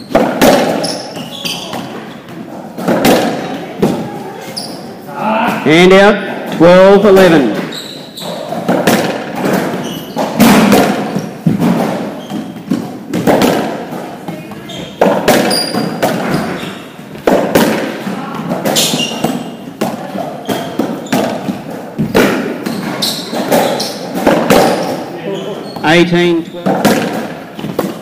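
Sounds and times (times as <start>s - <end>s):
racquet striking ball: 0.0s - 4.1s, 6.5s - 28.0s
ball smacking off walls: 0.1s - 2.0s, 2.8s - 4.0s, 8.5s - 25.0s, 26.6s - 28.0s.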